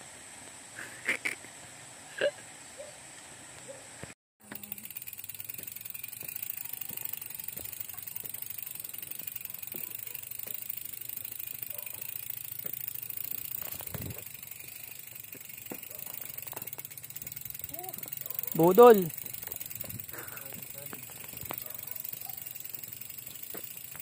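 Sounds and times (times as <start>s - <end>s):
bike tyre noise on concrete: 0.0s - 24.0s
bike clicks and rattles: 4.4s - 24.0s.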